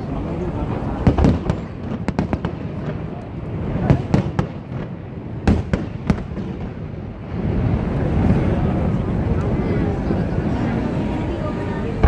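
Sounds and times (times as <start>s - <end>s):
fireworks bangs: 0.7s - 9.6s.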